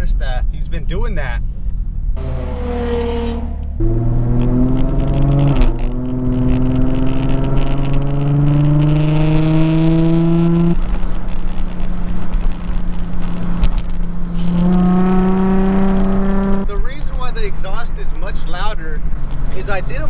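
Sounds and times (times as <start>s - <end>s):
car exhaust accelerating: 0.0s - 20.0s
rushing wind: 1.4s - 16.7s.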